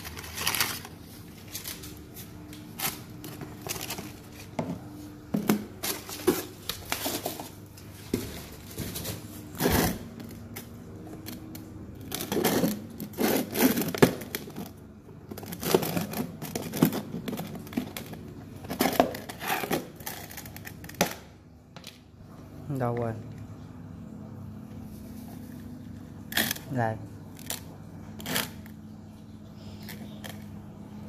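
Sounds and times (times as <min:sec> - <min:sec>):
packing material rustling: 0:00.0 - 0:10.2.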